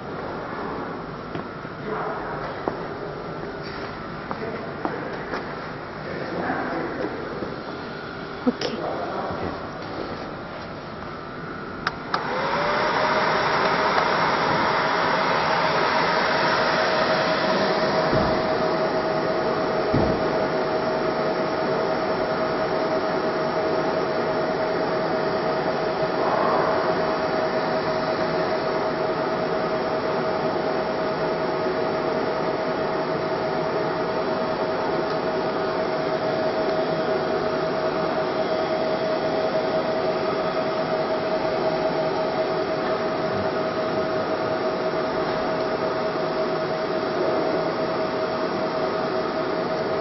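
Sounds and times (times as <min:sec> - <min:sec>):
machinery whirring: 0:11.2 - 0:50.0.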